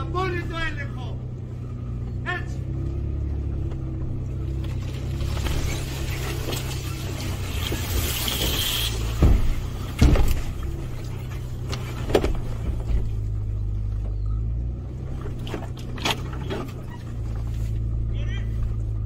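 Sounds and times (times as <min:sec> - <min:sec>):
vehicle engine droning: 0:00.0 - 0:19.0
vehicle knocks and clunks: 0:03.4 - 0:17.9.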